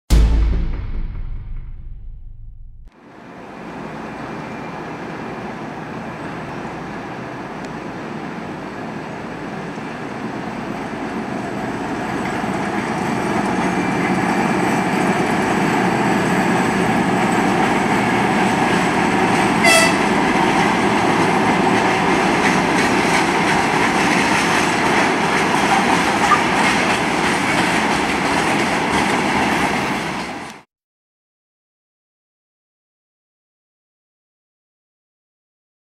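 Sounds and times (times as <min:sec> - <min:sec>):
brief sharp sound: 0:00.1 - 0:02.9, 0:19.6 - 0:20.2
diesel locomotive engine drone: 0:03.0 - 0:30.6
rolling noise of wagons: 0:10.6 - 0:30.4.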